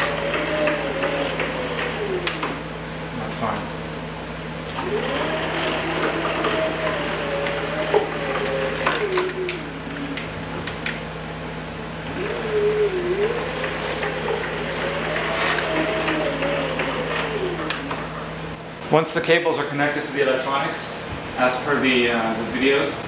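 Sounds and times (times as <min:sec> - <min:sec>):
gantry motor whine: 0:00.0 - 0:03.6, 0:04.5 - 0:18.8
steady low hum: 0:00.0 - 0:23.0.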